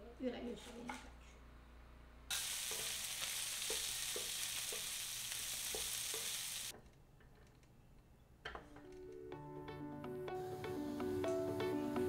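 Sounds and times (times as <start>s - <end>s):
meat sizzling in a pan: 2.3s - 6.7s.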